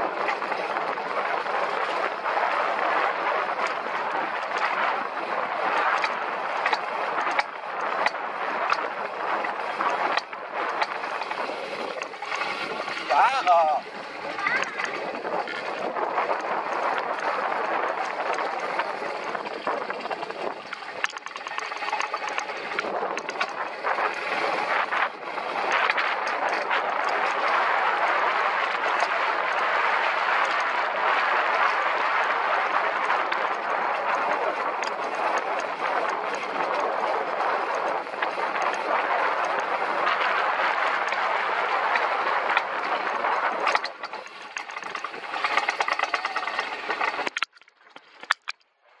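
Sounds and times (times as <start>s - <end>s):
coaster wheels rattling on rails: 0.0s - 48.3s.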